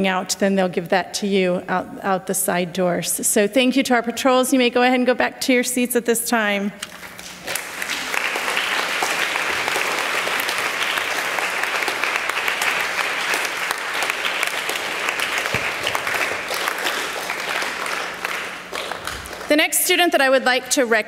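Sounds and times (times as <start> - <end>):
crowd applauding: 7.3 - 19.6.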